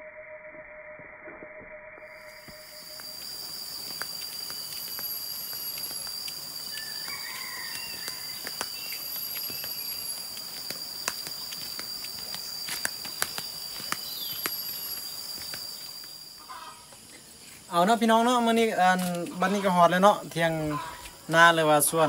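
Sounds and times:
high-pitched insect drone: 0.0s - 22.0s
bird chirps: 2.2s - 17.0s
flip-flop footsteps on dirt: 2.4s - 17.1s.

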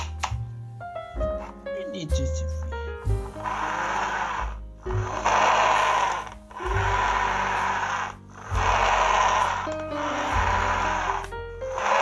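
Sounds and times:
background music: 0.0s - 12.0s
toy motor whirring: 3.4s - 12.0s.

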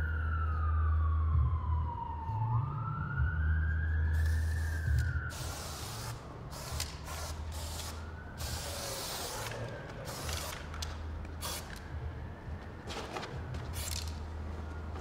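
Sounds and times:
spray paint can hissing: 4.2s - 11.8s, 13.7s - 14.2s.

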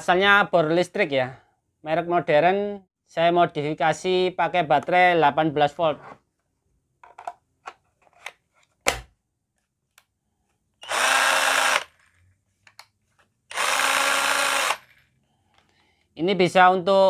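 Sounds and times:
electric drill running unloaded: 10.8s - 12.2s, 13.5s - 15.2s.

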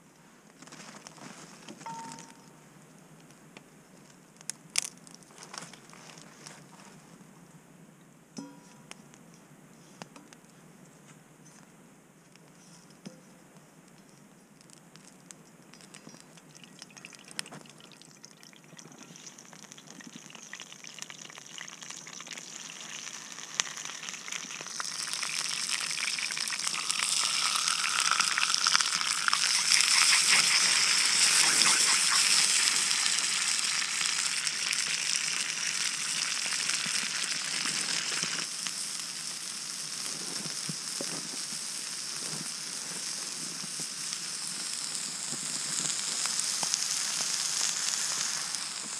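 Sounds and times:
food sizzling in a frying pan: 16.5s - 48.9s.

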